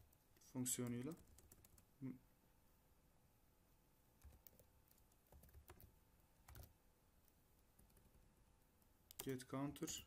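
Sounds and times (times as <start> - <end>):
keyboard typing: 0.1 - 1.9, 4.2 - 8.2.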